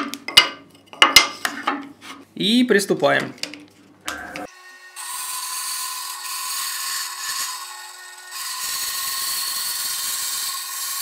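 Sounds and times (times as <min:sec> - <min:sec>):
bandsaw motor hum: 0:04.1 - 0:11.0
bandsaw cutting wood: 0:04.3 - 0:11.0.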